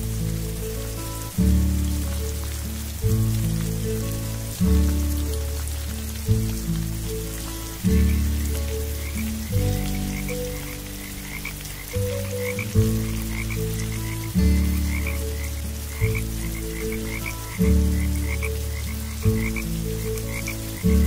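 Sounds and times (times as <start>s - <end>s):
deep low frog notes: 0.0s - 21.0s
faint rain hiss: 0.0s - 21.0s
frogs chirping: 7.8s - 21.0s.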